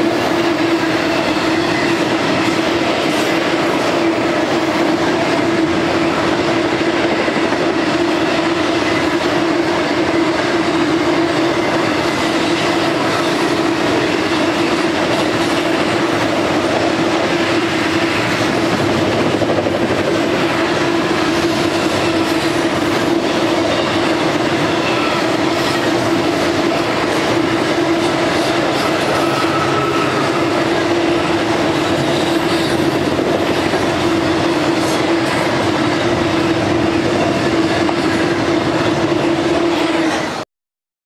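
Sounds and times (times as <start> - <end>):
freight train wheels rumbling: 0.0 - 40.4.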